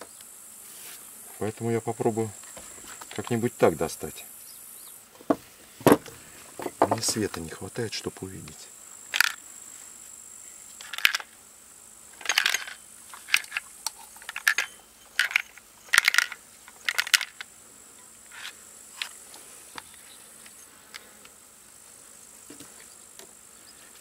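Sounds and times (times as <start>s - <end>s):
high insect chirring: 0.0s - 24.0s
small part rattling in plastic housing: 12.2s - 17.4s.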